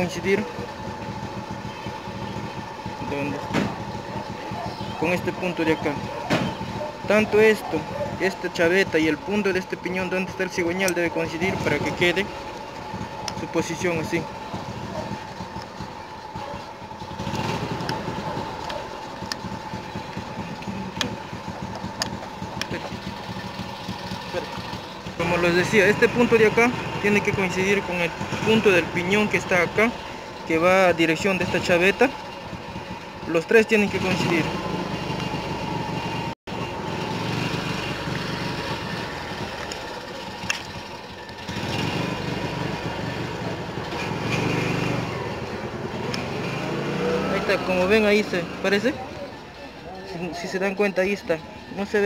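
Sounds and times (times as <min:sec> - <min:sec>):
small engine idling: 0:00.0 - 0:52.0
sharp clicks: 0:17.3 - 0:22.8.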